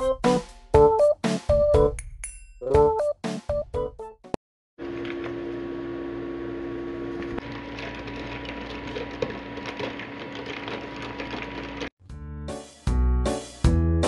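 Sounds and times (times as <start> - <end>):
ice rattling in a cup: 7.5 - 11.9.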